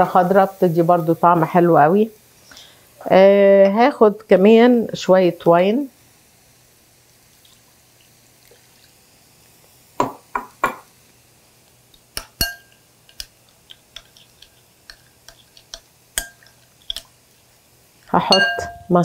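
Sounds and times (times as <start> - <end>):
glass clinks: 12.4 - 12.8, 18.3 - 18.9
wine glugging: 18.3 - 19.0.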